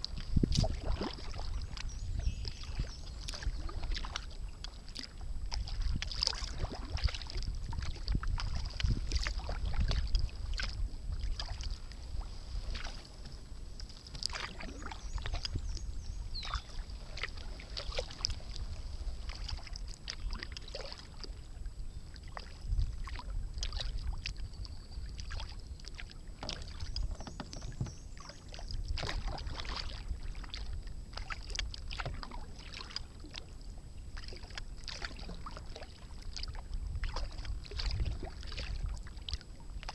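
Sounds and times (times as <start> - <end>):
paddle splashing water: 0.0 - 39.9
low microphone rumble: 5.2 - 20.4.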